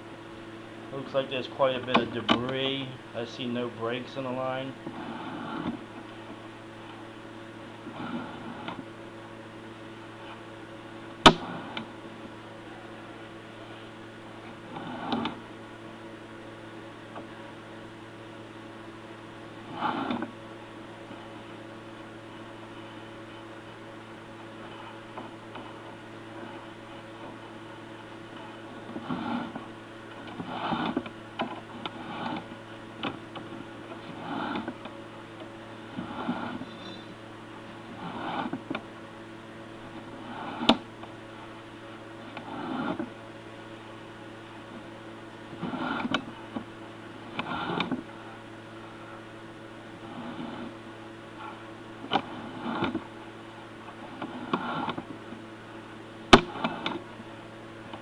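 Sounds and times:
electrical hum: 0.0 - 58.0
rushing scrape of push rod: 4.9 - 5.8, 7.9 - 8.8, 19.7 - 20.3, 28.4 - 29.7, 30.3 - 32.6, 33.4 - 34.9, 35.9 - 37.2, 37.9 - 38.7, 40.2 - 40.8, 42.3 - 43.1, 45.5 - 46.3, 47.4 - 48.0, 50.0 - 50.8, 54.2 - 55.1.

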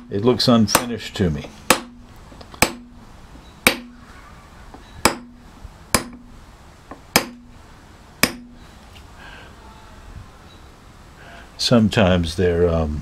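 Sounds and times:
mallet striking nail set: 6.9 - 7.5.

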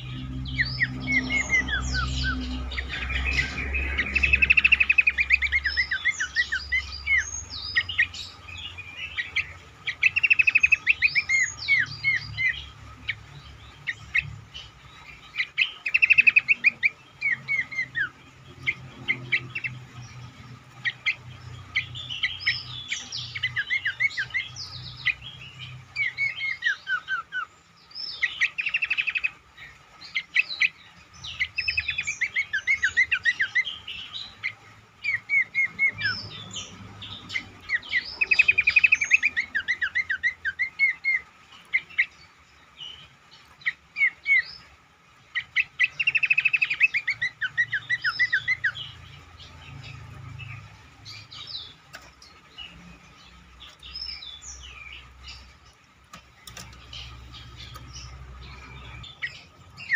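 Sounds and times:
bird whistling song: 0.0 - 13.2, 15.1 - 20.2, 20.8 - 42.2, 42.8 - 44.7, 45.3 - 51.7, 56.4 - 59.9.

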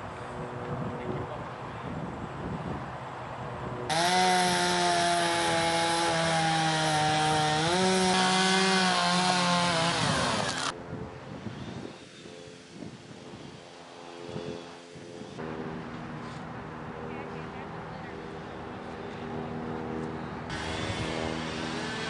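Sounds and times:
chainsaw running: 3.9 - 10.7, 20.5 - 22.0.

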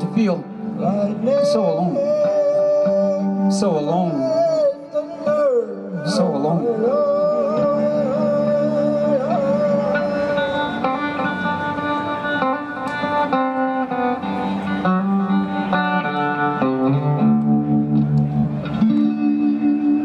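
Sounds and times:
electric guitar melody: 0.0 - 20.0
live band music: 5.3 - 20.0.

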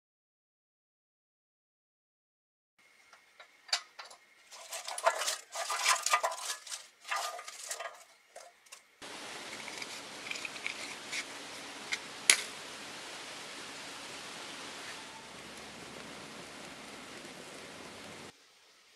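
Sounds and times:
steady background hiss: 2.8 - 18.9
pine cones rustling and knocking: 3.4 - 12.7
match struck on box: 11.9 - 12.6.

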